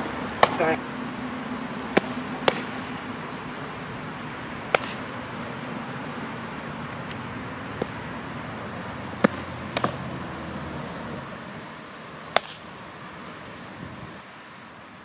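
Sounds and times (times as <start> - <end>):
steady background noise: 0.0 - 15.0
softball popping into leather glove: 1.9 - 2.7, 4.7 - 5.0, 9.2 - 10.0.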